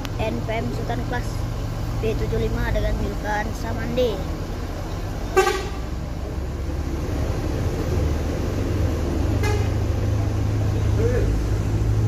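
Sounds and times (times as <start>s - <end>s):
diesel bus engine droning: 0.0s - 12.0s
bus horn toots: 5.3s - 5.9s, 9.4s - 9.9s.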